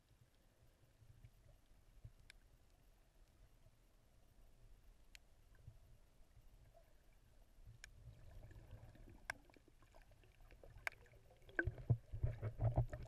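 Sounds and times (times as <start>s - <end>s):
low underwater rumble: 7.6s - 13.0s.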